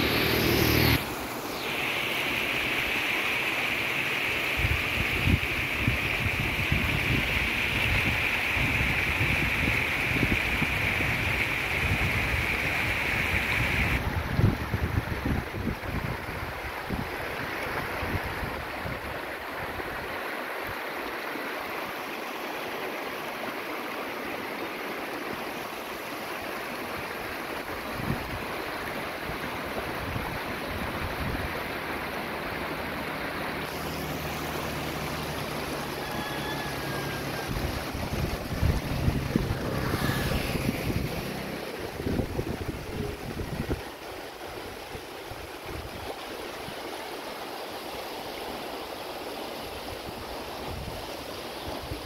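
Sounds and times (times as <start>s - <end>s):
river rushing over stones: 0.0s - 52.0s
wind buffeting microphone: 37.4s - 44.0s.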